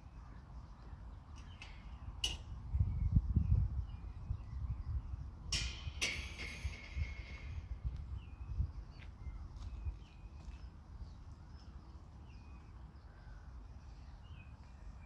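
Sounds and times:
wind on microphone: 2.1 - 10.2.

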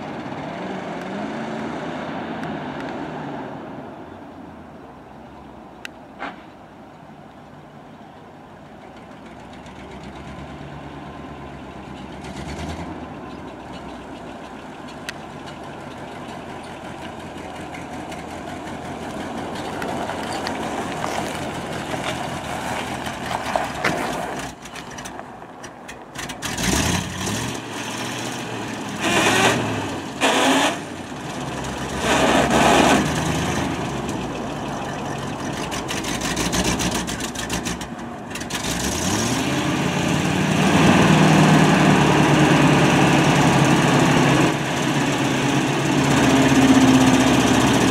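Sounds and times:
dump truck engine running: 8.6 - 26.4, 28.1 - 38.6, 39.5 - 47.9.

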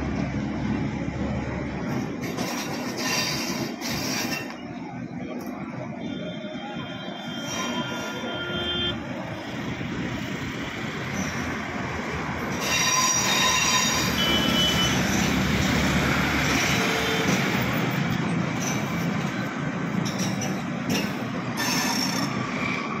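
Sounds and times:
train wheels rumbling over rails: 0.0 - 6.0, 9.0 - 23.0
high-pitched wheel squeal: 2.4 - 4.7, 6.4 - 9.0, 11.1 - 15.5, 21.6 - 23.0.

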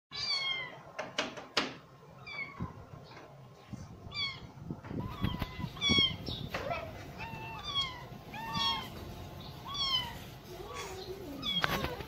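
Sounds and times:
cat meowing: 0.1 - 0.8, 2.2 - 2.8, 4.1 - 9.0, 9.6 - 12.0.

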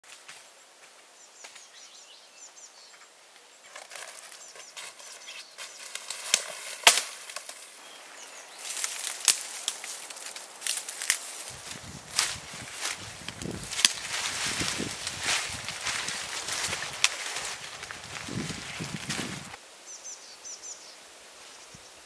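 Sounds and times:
rustling dry branches: 3.6 - 19.6
twigs snapping: 5.6 - 7.8, 8.6 - 19.6
faint bird chirps: 19.8 - 22.0.

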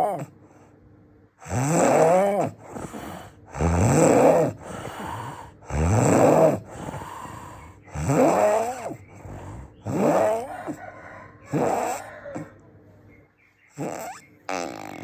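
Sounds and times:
quiet breathing: 0.3 - 1.0, 2.5 - 12.6
person snoring loudly: 1.4 - 12.5, 13.7 - 15.0.

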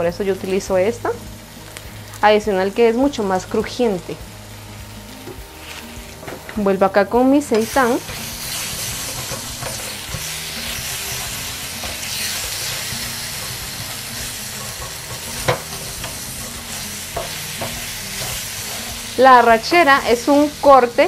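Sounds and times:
food sizzling in a frying pan: 0.0 - 21.0
spatula knocking against pan: 9.0 - 10.3, 13.3 - 19.0.

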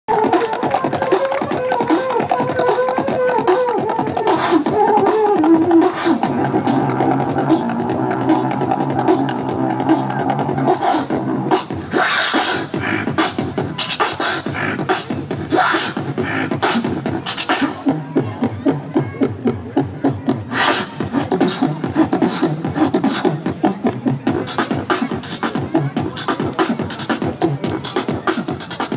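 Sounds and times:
beatboxing: 0.1 - 28.9.

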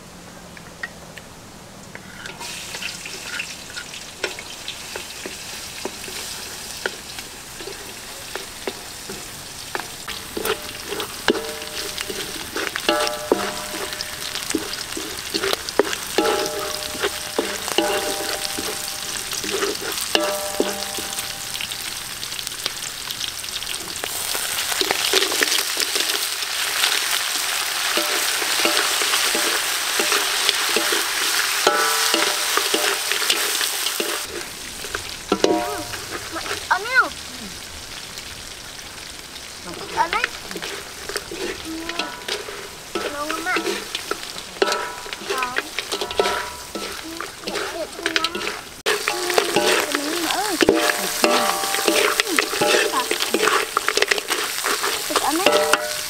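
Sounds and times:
food sizzling in hot oil: 2.1 - 56.0
metal spatula scraping pan: 7.5 - 22.0, 24.3 - 36.7, 39.8 - 56.0.

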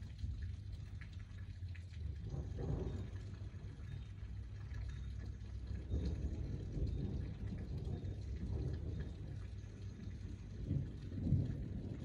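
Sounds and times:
light rain hiss: 0.0 - 12.0
distant thunder rumbling: 2.2 - 3.7, 5.7 - 12.0.

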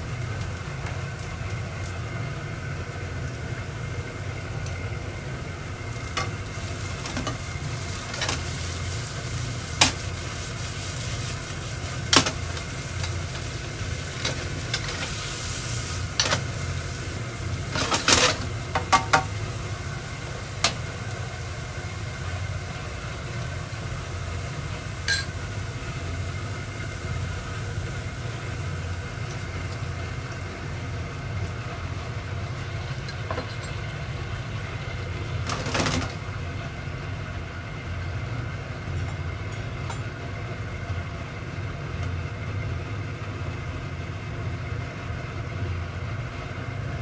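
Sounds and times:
tofu sizzling in a pan: 0.1 - 30.6.

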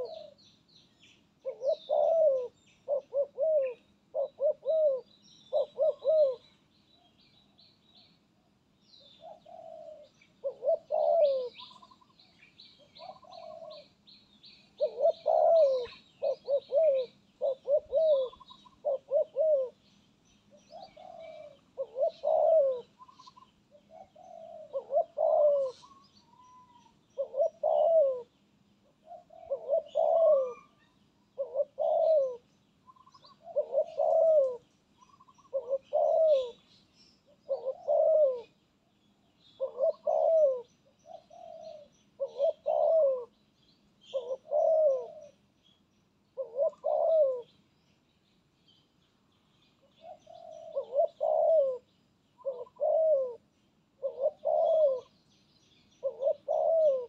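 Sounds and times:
doves cooing: 0.0 - 0.4, 1.4 - 7.6, 8.4 - 19.9, 20.5 - 38.6, 39.2 - 43.4, 44.0 - 45.5, 46.4 - 47.6, 49.8 - 55.2, 56.0 - 57.0.

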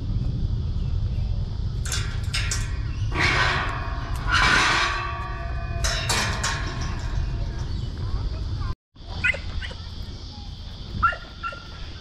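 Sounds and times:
low rumble: 0.0 - 8.8
gate clanking against latch: 1.8 - 7.9
metal gate rattling: 1.8 - 8.0.

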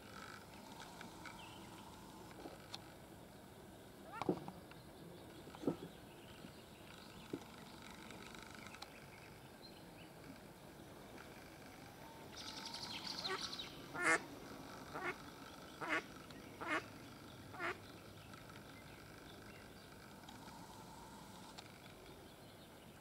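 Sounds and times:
duck quacking: 14.0 - 14.2, 14.9 - 15.2, 15.8 - 16.9, 17.6 - 17.8.

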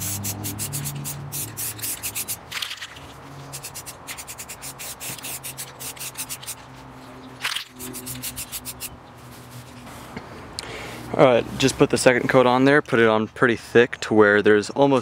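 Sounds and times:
spray can hissing: 0.0 - 2.5, 3.5 - 6.6, 7.7 - 8.9
spray can rattling: 0.0 - 6.6, 7.4 - 8.9.

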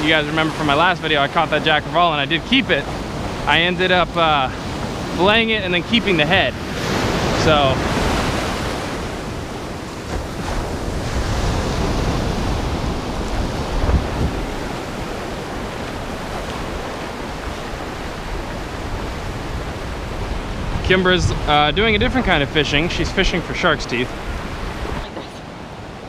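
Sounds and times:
surf breaking on shore: 0.0 - 26.0
wind buffeting microphone: 0.0 - 26.0.

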